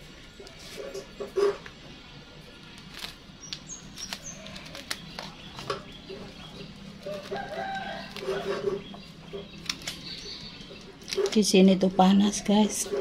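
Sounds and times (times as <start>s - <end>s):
rooster crowing: 7.0s - 8.8s.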